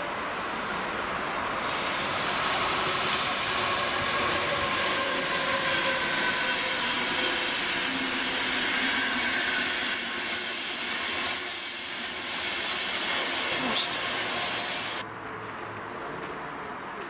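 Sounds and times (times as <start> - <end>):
train coaches rolling past: 0.0 - 17.0
wheels squealing: 1.6 - 15.0.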